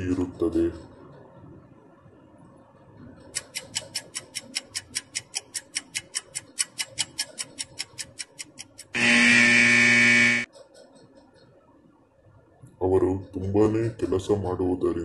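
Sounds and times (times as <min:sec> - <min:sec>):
fast clock-like ticking: 0:03.4 - 0:09.0
loud buzzer tone: 0:08.9 - 0:10.5.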